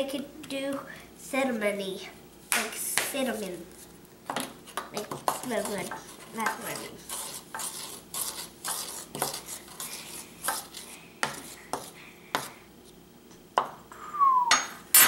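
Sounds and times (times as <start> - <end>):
metal spoon stirring in a bowl: 4.3 - 12.5.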